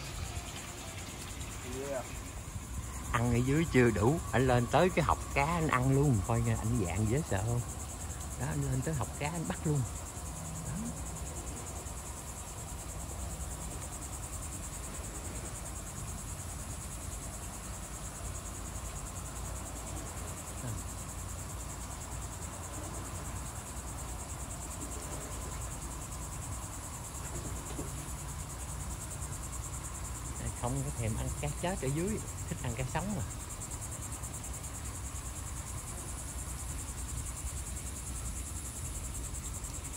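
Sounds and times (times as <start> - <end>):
high-pitched insect chorus: 0.0 - 39.9.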